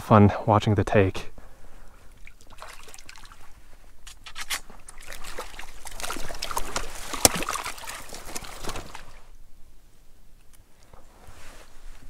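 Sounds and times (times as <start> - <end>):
fish splashing in water: 2.2 - 3.5, 4.8 - 9.2.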